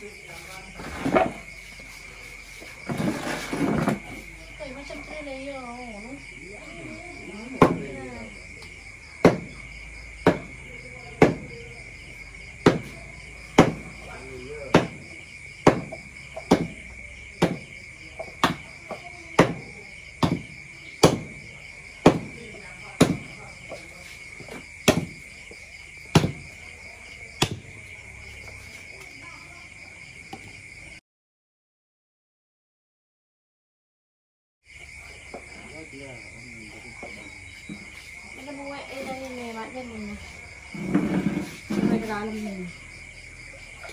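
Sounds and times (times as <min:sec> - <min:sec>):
crickets chirring: 0:00.0 - 0:31.0, 0:34.6 - 0:43.9
cleaver chopping on wooden block: 0:09.2 - 0:09.5, 0:10.2 - 0:10.6, 0:11.2 - 0:11.5, 0:12.6 - 0:13.9, 0:14.7 - 0:15.0, 0:15.6 - 0:16.8, 0:17.4 - 0:17.7, 0:18.4 - 0:21.4, 0:22.0 - 0:22.3, 0:23.0 - 0:23.3, 0:24.8 - 0:25.2, 0:26.1 - 0:26.4, 0:27.4 - 0:27.6
knife chopping on wooden board: 0:10.2 - 0:10.5, 0:12.6 - 0:13.0, 0:13.6 - 0:13.9, 0:14.7 - 0:15.0, 0:15.6 - 0:16.8, 0:20.2 - 0:21.3, 0:23.0 - 0:23.3, 0:26.1 - 0:26.4.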